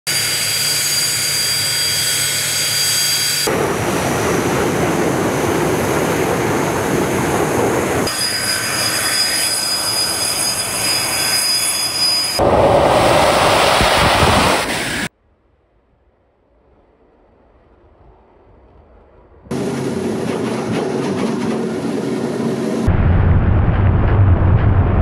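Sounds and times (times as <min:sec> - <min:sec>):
jet engine high whine: 0:00.1 - 0:15.1, 0:16.9 - 0:25.0
jet engine rush: 0:03.0 - 0:08.1, 0:11.9 - 0:15.1, 0:17.7 - 0:25.0.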